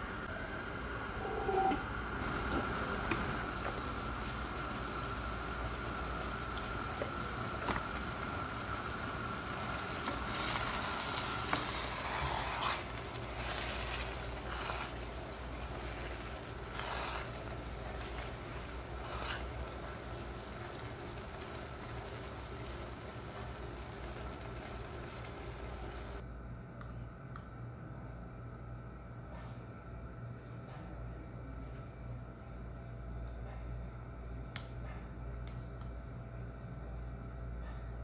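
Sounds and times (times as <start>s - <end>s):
pot simmering with low sizzle: 0.0s - 26.2s
plastic spatula stirring and scraping: 10.0s - 20.0s.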